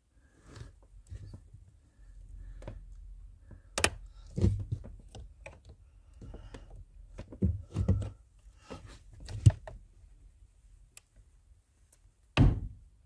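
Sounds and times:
plastic clicks: 0:03.7 - 0:06.7.

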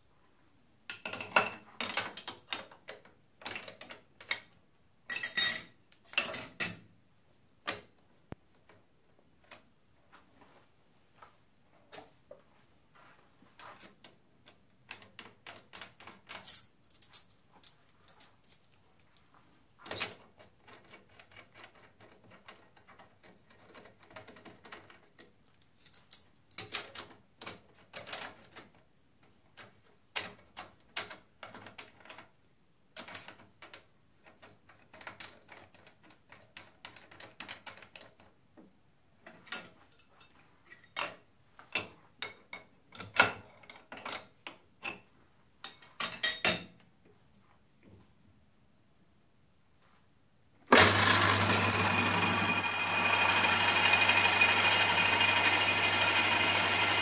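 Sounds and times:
metal tools clinking: 0:05.1 - 0:06.8, 0:45.6 - 0:46.7.

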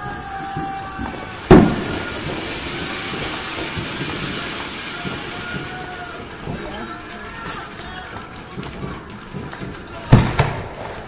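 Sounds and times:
firework fountain hissing: 0:00.0 - 0:11.0
sharp bang: 0:00.5 - 0:07.6.

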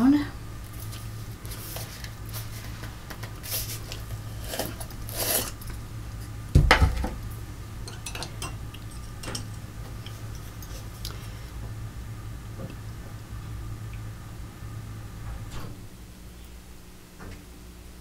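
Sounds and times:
steady low hum: 0:00.0 - 0:18.0
short scrapes on table: 0:03.5 - 0:05.6.

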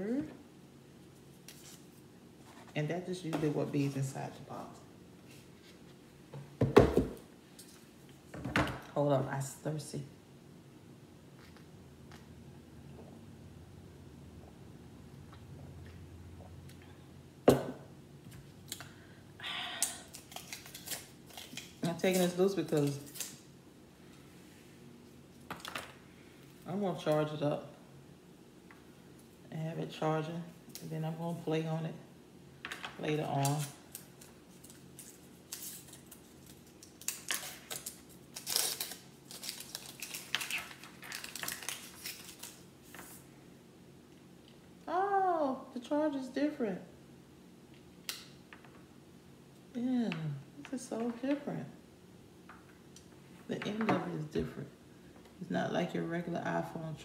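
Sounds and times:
cup knocking on wooden table: 0:06.6 - 0:07.2
plastic rustle: 0:33.4 - 0:43.2.

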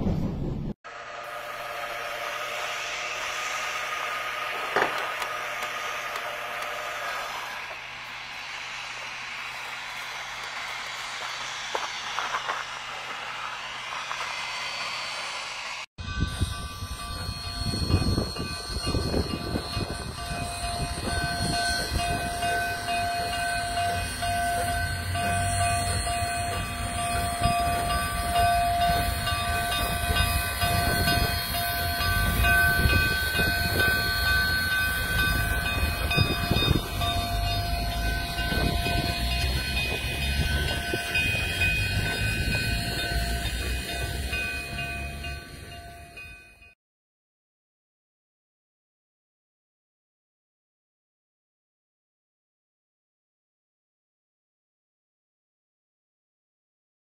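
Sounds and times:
steam locomotive rumbling past: 0:00.0 - 0:46.8
high-pitched squealing ring: 0:00.9 - 0:07.7, 0:14.5 - 0:46.8.

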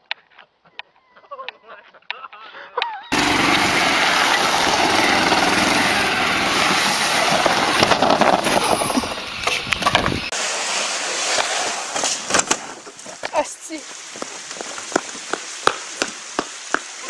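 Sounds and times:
golf cart driving: 0:03.1 - 0:13.1
cart hissing on wet pavement: 0:03.1 - 0:17.0.

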